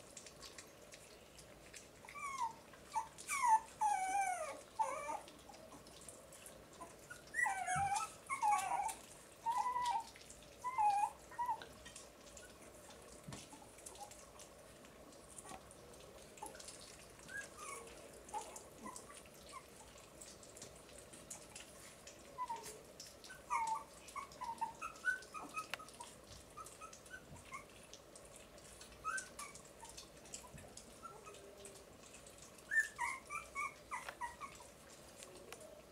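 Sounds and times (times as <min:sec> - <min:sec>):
soft eating clicks: 0:00.0 - 0:35.9
puppies whimpering: 0:02.0 - 0:05.9, 0:06.7 - 0:12.7, 0:16.2 - 0:20.6, 0:21.3 - 0:27.9, 0:29.0 - 0:35.9.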